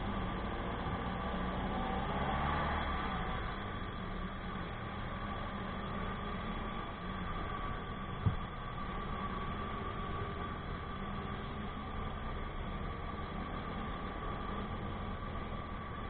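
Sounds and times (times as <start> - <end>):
road noise: 0.0 - 16.0
short thump: 8.2 - 8.4.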